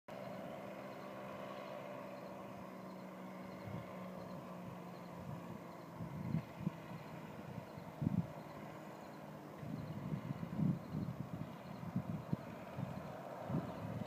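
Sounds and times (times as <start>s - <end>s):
engine and propeller droning: 0.1s - 14.0s.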